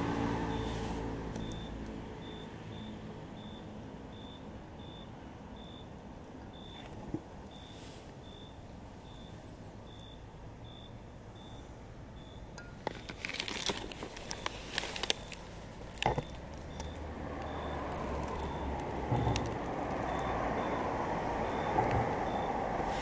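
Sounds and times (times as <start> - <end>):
engine rumble: 0.0 - 23.0
reversing alarm beeping: 0.4 - 0.8, 1.4 - 6.8, 7.5 - 12.7, 16.1 - 22.8
crackling clicks and rustles: 12.6 - 20.6.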